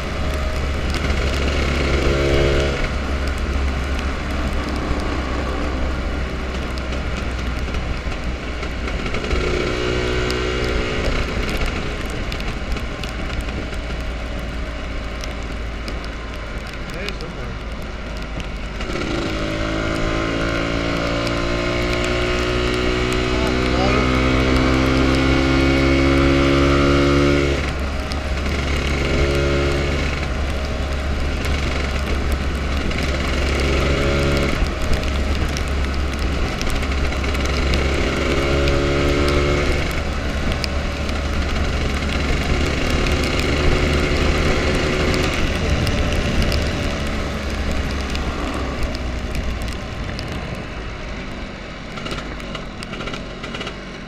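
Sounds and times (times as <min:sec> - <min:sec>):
wind noise on microphone: 0:17.6 - 0:53.8.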